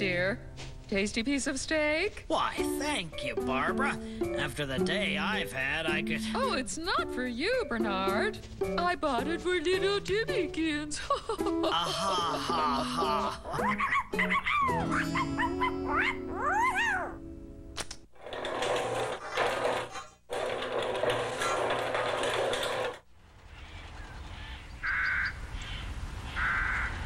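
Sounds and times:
background music: 0.0 - 17.9
cartoon dog yapping and whining: 13.6 - 17.2.

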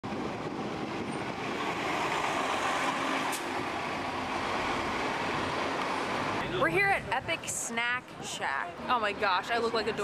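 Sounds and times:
street traffic: 0.0 - 10.0
bus driving past: 0.1 - 6.6.

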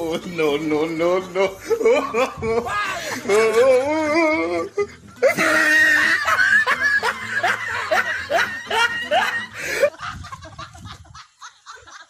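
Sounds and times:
people laughing loudly: 0.0 - 12.0.

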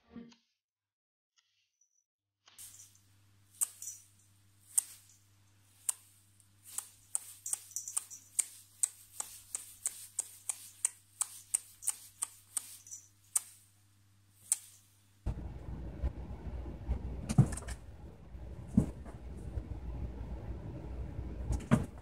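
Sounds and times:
sharp dry clicks: 3.6 - 13.7, 14.4 - 14.9.

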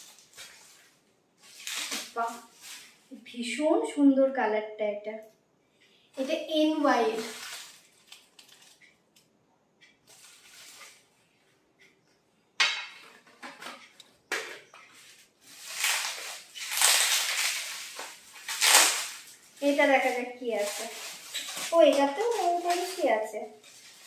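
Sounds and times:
plastic wrapping crinkling: 0.0 - 3.2, 6.2 - 9.0, 10.1 - 11.2, 14.9 - 24.0.

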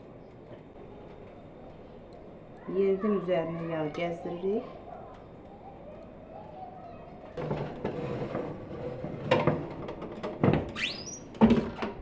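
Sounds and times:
short rising squeak: 10.8 - 11.3.

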